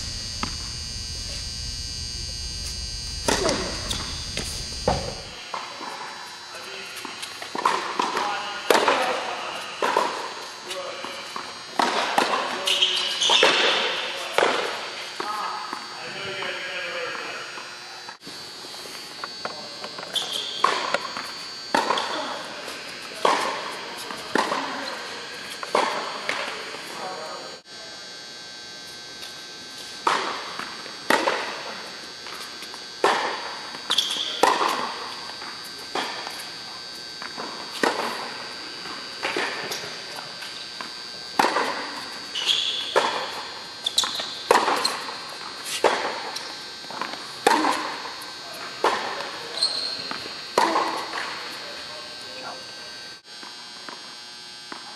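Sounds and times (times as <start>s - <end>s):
racket striking tennis ball: 0.4s - 0.6s
tennis ball bouncing: 0.4s - 0.7s.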